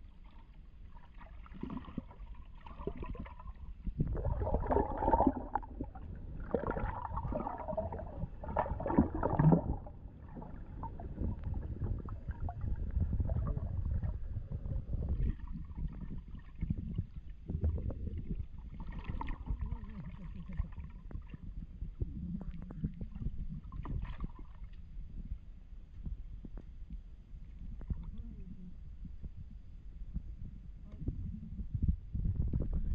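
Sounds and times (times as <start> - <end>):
underwater rumble of moving water: 0.0 - 32.9
splashing and gurgling: 0.2 - 21.2.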